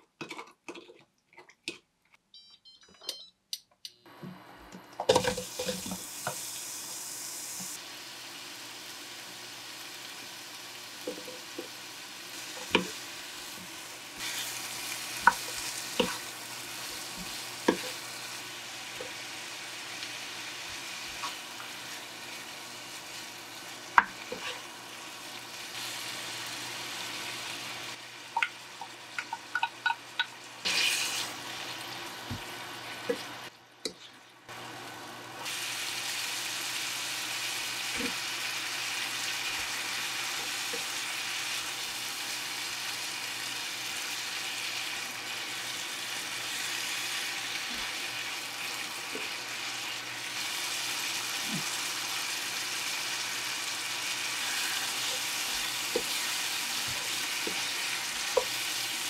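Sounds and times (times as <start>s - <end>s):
food sizzling in a frying pan: 5.1s - 33.5s, 34.4s - 59.0s
spatula tapping: 28.4s - 30.3s.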